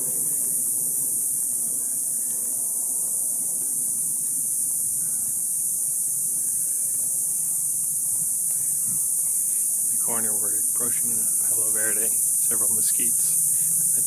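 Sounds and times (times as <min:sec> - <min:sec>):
cicadas buzzing: 0:00.0 - 0:14.0.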